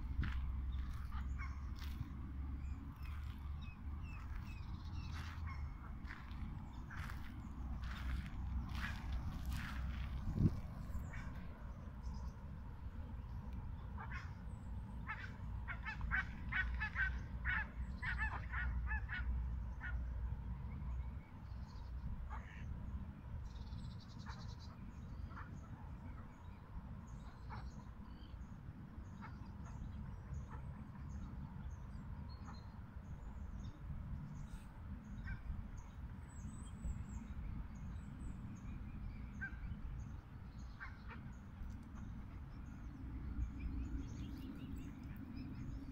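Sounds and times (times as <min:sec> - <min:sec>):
steady low rumble: 0:00.0 - 0:18.1, 0:33.1 - 0:45.9.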